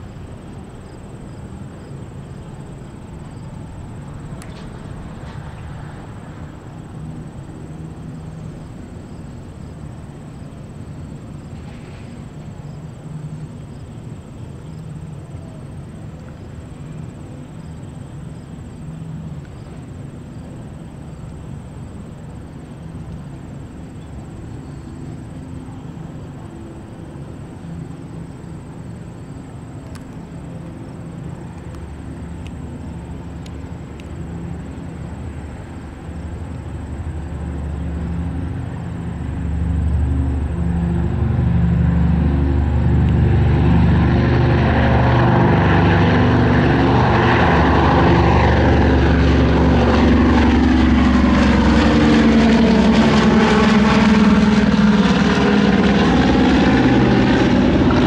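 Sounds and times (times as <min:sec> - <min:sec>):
propeller aircraft engines droning: 0:00.0 - 0:58.0.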